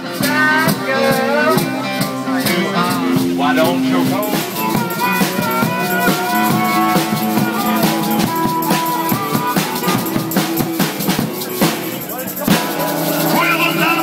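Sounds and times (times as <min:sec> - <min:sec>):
held guitar notes: 0:00.0 - 0:14.0
drum beat: 0:00.1 - 0:14.0.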